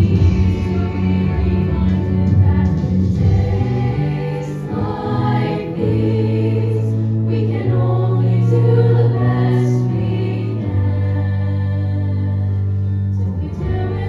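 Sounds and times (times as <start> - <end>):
instrumental accompaniment: 0.0 - 14.0
chorus singing a show tune: 2.5 - 10.8.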